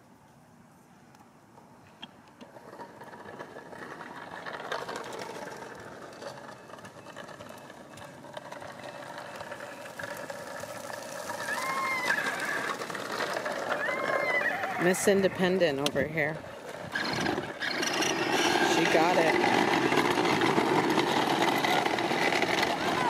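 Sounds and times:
plastic wheels rolling on asphalt: 1.1 - 23.0
small motor whirring: 6.6 - 14.9, 16.8 - 23.0
recorded horse whinny: 13.7 - 15.2.

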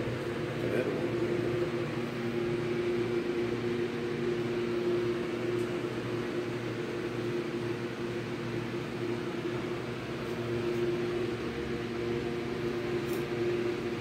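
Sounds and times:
machine hum with mid-pitched tone: 0.0 - 14.0.

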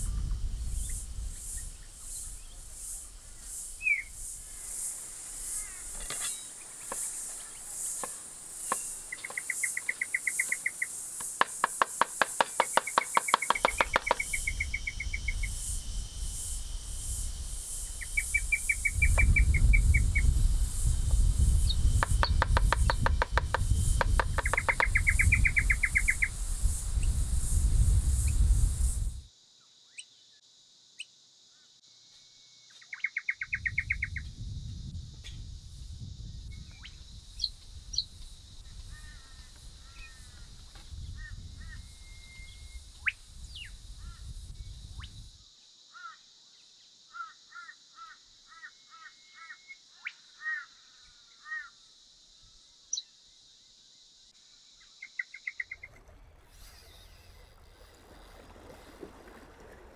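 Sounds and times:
wind rumbling on microphone: 0.0 - 8.2, 13.4 - 29.3, 33.4 - 45.4, 55.8 - 59.9
high insect buzz: 0.0 - 29.3, 31.8 - 50.0, 50.6 - 59.9
small birds chirping: 3.7 - 4.8, 5.4 - 15.6, 21.6 - 23.4, 24.0 - 26.3.

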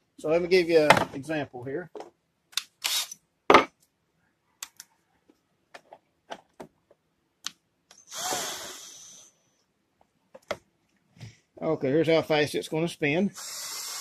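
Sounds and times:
cordless drill spinning: 2.8 - 3.2, 7.9 - 9.3, 13.4 - 14.0.

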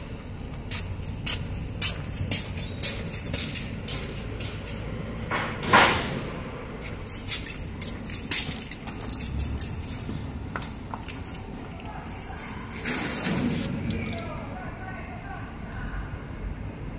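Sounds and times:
metallic clinks and taps: 0.6 - 5.5, 6.8 - 12.3.

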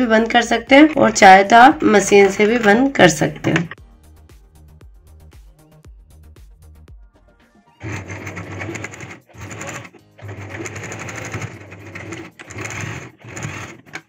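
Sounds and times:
electric sewing machine stitching: 7.8 - 14.0.

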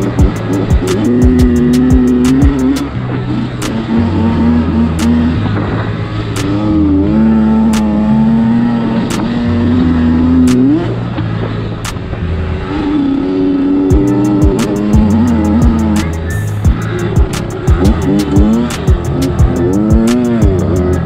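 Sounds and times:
background music with beat: 0.0 - 6.8, 10.4 - 12.2, 13.9 - 21.0
dirt bike engine revving: 0.0 - 21.0.

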